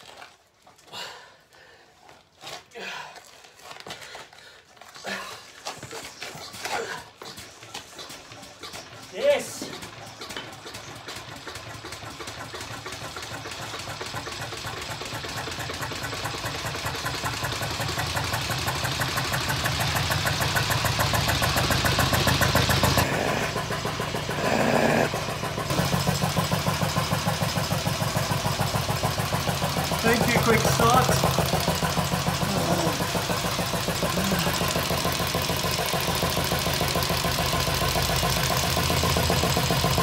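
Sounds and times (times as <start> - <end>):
diesel engine running: 7.9 - 40.0.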